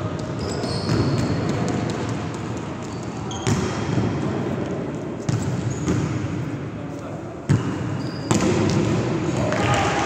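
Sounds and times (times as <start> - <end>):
background noise: 0.0 - 10.0.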